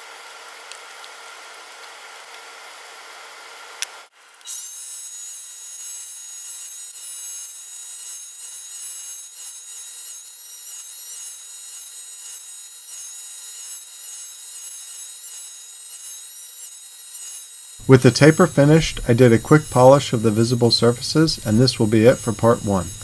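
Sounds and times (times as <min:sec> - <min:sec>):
lathe whining: 0:08.2 - 0:23.0
abrasive paper rubbing hiss: 0:17.8 - 0:23.0.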